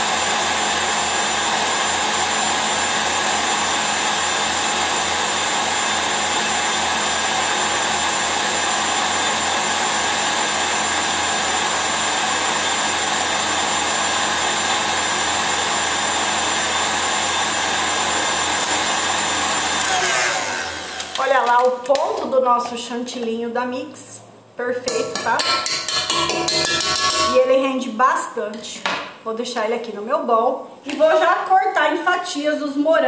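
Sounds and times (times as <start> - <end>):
stand mixer running at high speed: 0.0 - 21.2.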